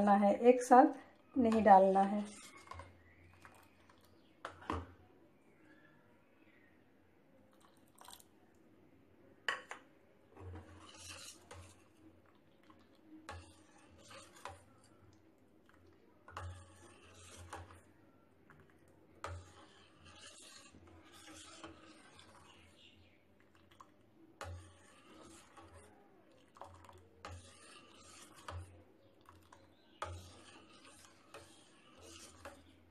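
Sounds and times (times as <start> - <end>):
metal ladle scraping steel pan: 1.3 - 4.9, 10.4 - 12.0, 12.6 - 15.0, 16.3 - 17.9, 19.2 - 22.9, 24.4 - 32.8.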